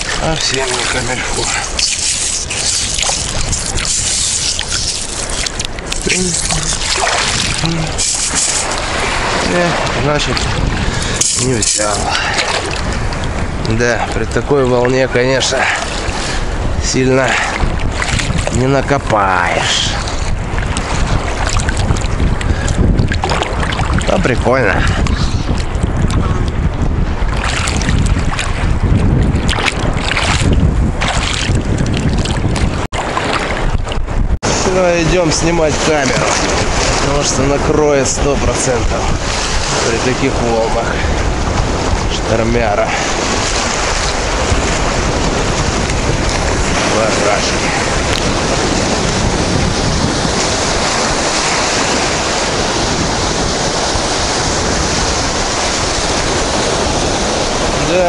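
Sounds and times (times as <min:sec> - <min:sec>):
waves breaking: 0:00.0 - 0:58.0
wind buffeting microphone: 0:00.0 - 0:58.0.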